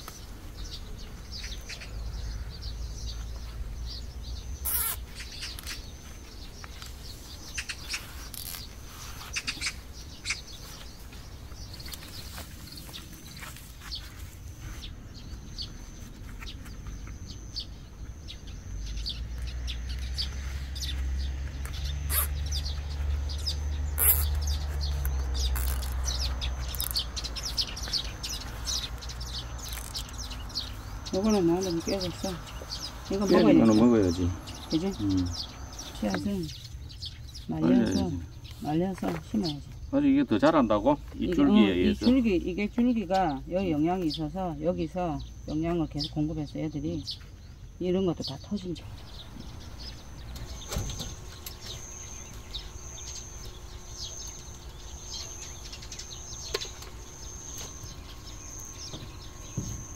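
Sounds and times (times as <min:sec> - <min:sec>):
small birds chirping: 0:00.0 - 0:59.9
dry stalks crackling and rustling: 0:03.1 - 0:17.2, 0:20.2 - 0:33.3.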